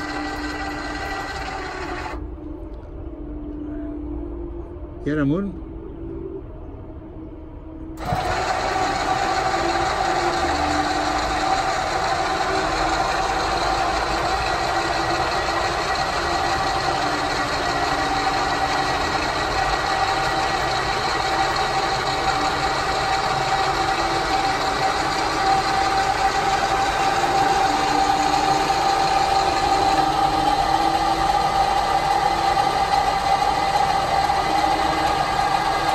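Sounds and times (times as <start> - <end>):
electric motors whining: 0.0 - 3.8, 7.9 - 35.9.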